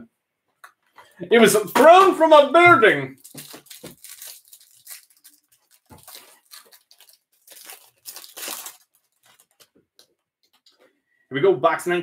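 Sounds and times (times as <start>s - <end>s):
plastic wrapper tearing and crinkling: 3.1s - 10.6s.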